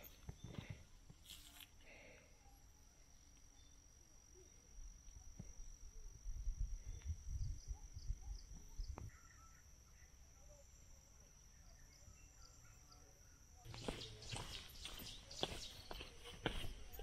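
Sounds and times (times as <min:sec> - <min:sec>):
high insect drone: 0:00.0 - 0:17.0
faint bird-like chirps: 0:05.6 - 0:17.0.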